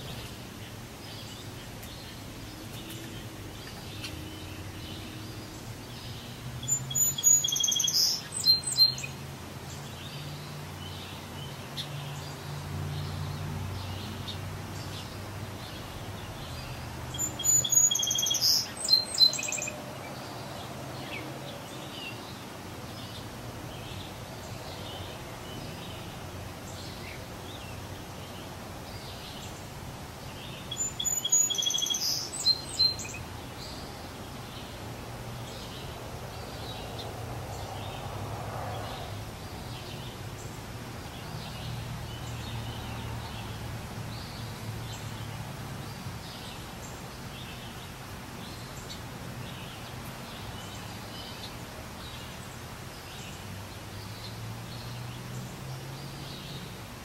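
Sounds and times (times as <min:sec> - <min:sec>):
birds chirping: 0:00.0 - 0:57.0
songbird singing high phrase: 0:03.6 - 0:09.2, 0:14.8 - 0:20.4, 0:21.0 - 0:34.8.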